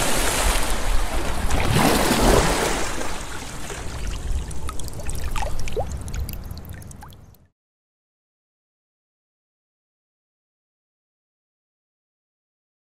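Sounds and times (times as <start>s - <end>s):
water pouring and trickling: 1.6s - 7.5s
water bubbling blips: 3.4s - 7.5s.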